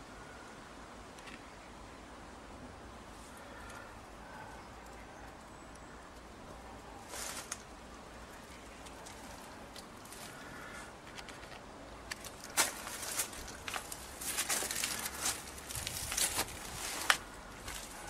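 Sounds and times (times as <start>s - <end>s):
footsteps on dry leaves: 7.1s - 7.6s, 12.2s - 18.0s.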